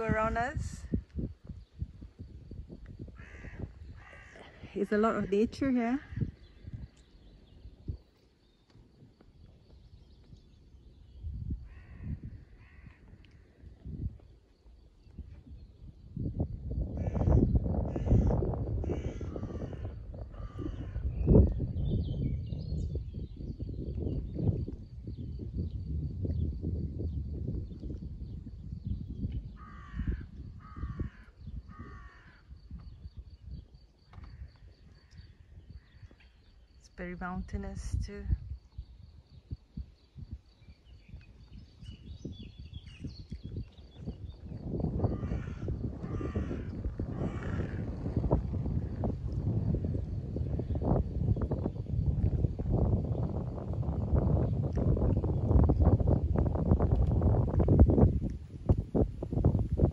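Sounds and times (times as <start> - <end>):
crow cawing: 3.2 - 4.6, 11.7 - 13.0, 29.6 - 32.5, 45.1 - 48.0
faint bird calls: 3.2 - 5.0, 11.6 - 13.8.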